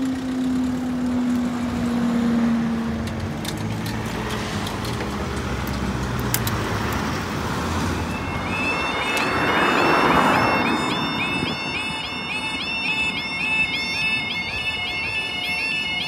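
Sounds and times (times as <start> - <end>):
road vehicles moving off: 0.0 - 16.0
barrier mechanical whine: 7.8 - 16.0.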